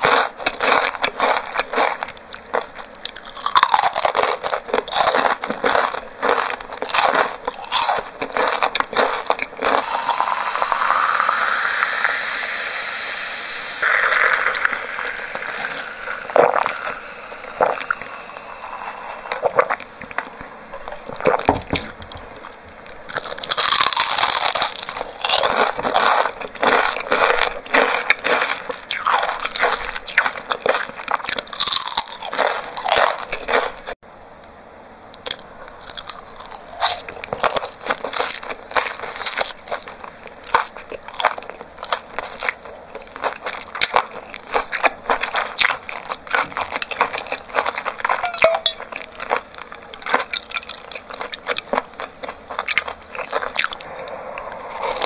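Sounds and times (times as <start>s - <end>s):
crunching fried chicken: 0.0s - 12.2s, 13.8s - 34.0s, 35.0s - 55.0s
drink sipped through straw: 9.7s - 20.3s.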